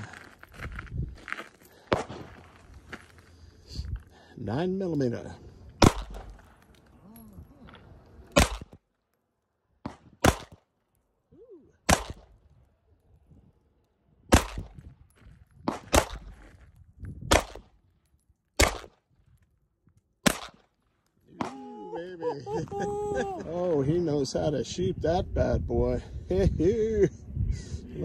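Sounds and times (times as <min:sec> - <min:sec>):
pistol shots: 0:05.8 - 0:06.5, 0:08.3 - 0:08.8, 0:09.8 - 0:10.6, 0:11.8 - 0:12.4, 0:14.3 - 0:14.8, 0:15.6 - 0:16.4, 0:17.3 - 0:17.7, 0:18.6 - 0:19.0, 0:20.2 - 0:20.7.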